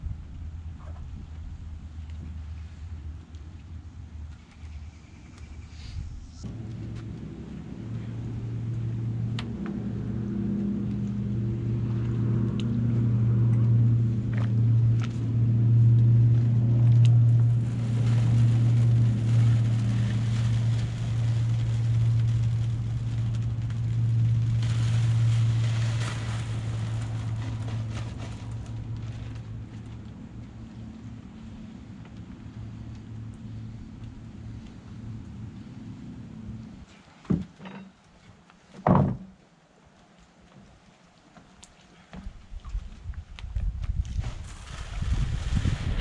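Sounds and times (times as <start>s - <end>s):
engine drone passing: 2.4s - 36.9s
concrete mix pouring from bag: 17.2s - 29.9s, 44.1s - 46.0s.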